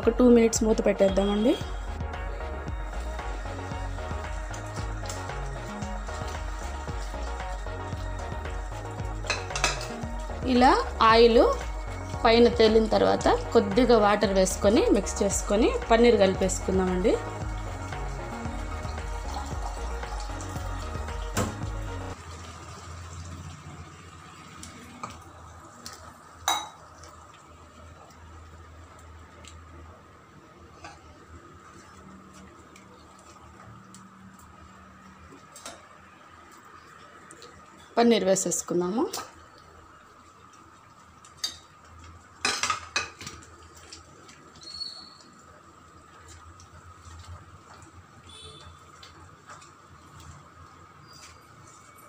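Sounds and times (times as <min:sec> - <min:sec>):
spatula scraping and clinking pan: 0:09.2 - 0:10.0.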